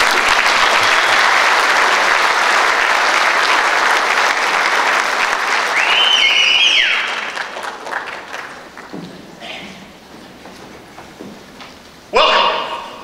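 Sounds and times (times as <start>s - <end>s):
audience applauding: 0.0s - 10.1s
high whistle: 5.7s - 7.2s.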